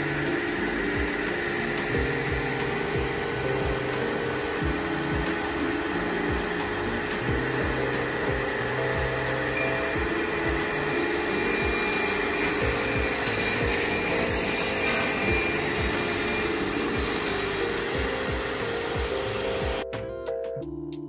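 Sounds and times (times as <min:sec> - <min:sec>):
high whining tones: 0:00.0 - 0:19.8
saw blade grinding through stone: 0:09.6 - 0:18.3.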